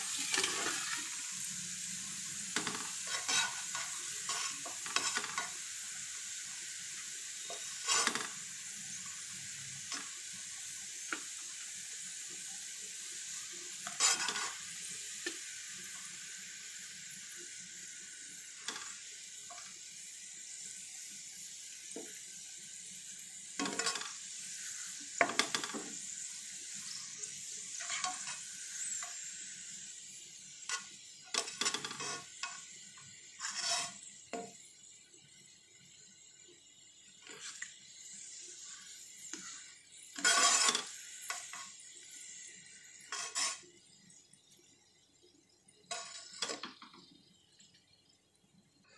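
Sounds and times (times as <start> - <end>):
spatula scraping pan: 0.0 - 1.2, 2.5 - 5.6, 7.3 - 8.4, 13.8 - 14.7, 23.6 - 24.2, 24.9 - 26.0, 27.7 - 29.3, 30.6 - 32.7, 33.3 - 34.1, 37.2 - 37.7, 38.6 - 41.9, 43.0 - 43.6, 45.9 - 46.8
onions sizzling in oil: 0.0 - 48.9.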